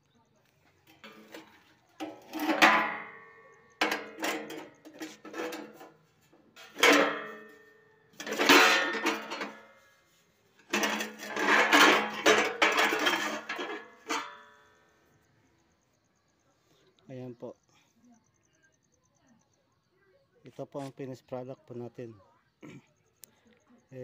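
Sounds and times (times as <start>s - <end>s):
steel plates and levers clanking: 0.9s - 14.8s.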